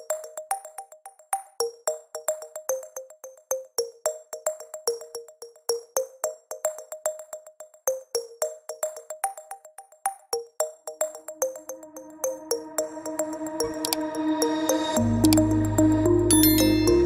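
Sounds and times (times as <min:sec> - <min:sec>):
plucked synthesizer tune: 0:15.0 - 0:17.0.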